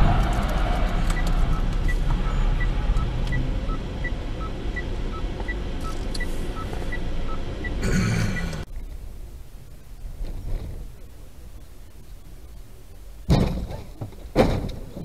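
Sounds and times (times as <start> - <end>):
car road and engine noise: 0.0 - 15.0
two-tone electronic beeping: 1.1 - 8.6.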